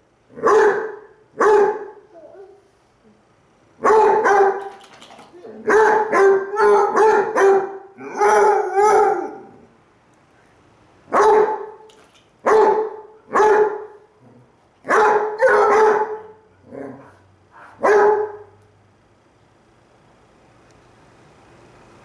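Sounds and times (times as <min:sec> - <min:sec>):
hounds howling: 0:06.0 - 0:09.6.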